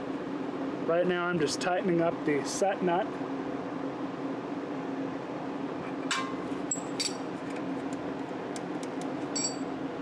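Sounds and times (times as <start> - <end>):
steady low hum: 0.0 - 10.0
wrench clinking on metal: 6.1 - 7.2, 9.3 - 9.7.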